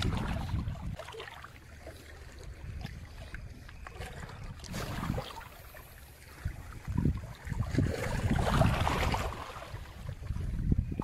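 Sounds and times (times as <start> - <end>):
water washing over rocks: 0.0 - 1.2, 7.7 - 9.8
wind rumbling on microphone: 0.0 - 11.0.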